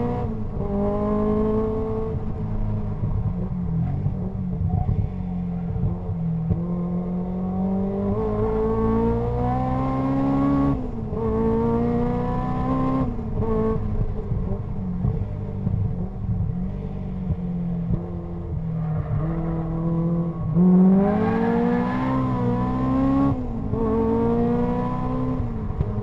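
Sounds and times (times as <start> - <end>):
race car engine revving: 17.9 - 26.0.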